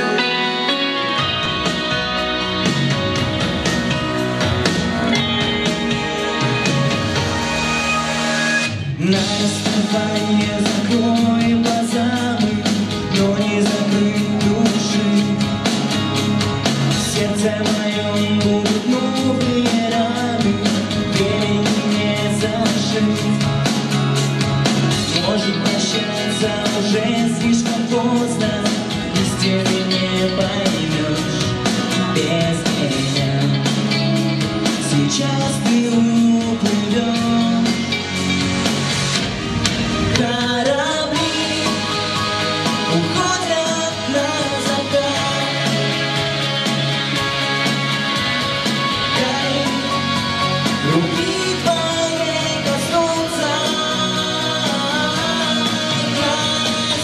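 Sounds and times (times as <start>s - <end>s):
pop backing music: 0.0s - 57.0s
man singing into microphone: 8.9s - 24.0s, 25.0s - 38.2s, 40.2s - 46.7s, 48.8s - 57.0s.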